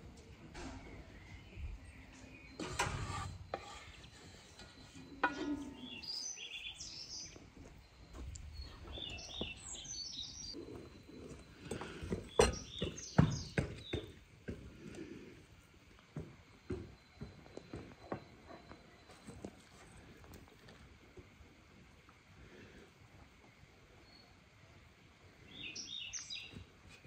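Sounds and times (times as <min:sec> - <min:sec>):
small birds chirping: 0:03.7 - 0:14.3, 0:25.3 - 0:27.0.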